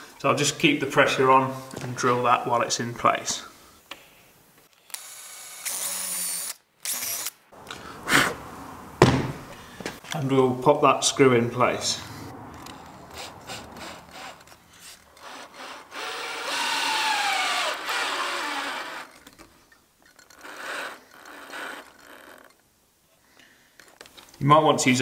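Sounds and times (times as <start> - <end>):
cordless drill motor whine: 15.2 - 19.2.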